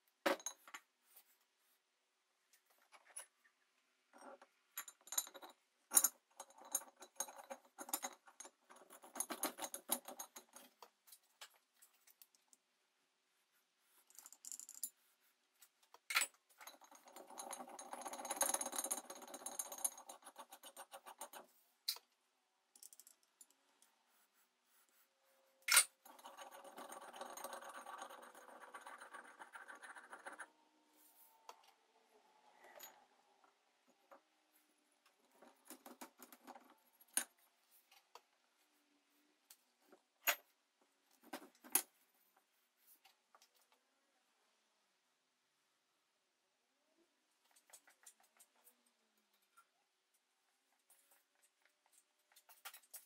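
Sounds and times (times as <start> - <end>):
metal screw rattling and scraping: 4.2 - 12.5, 14.0 - 22.1, 22.7 - 23.6, 25.6 - 30.5.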